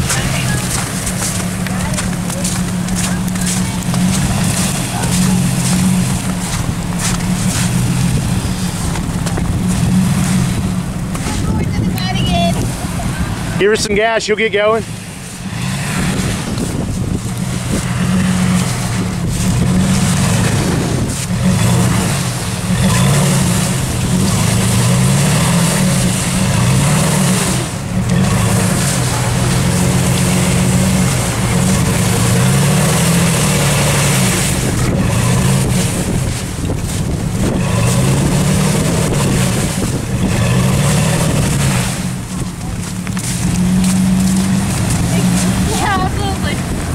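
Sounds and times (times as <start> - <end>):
truck engine revving: 0.0 - 46.9
tyres spinning on snow: 0.0 - 46.9.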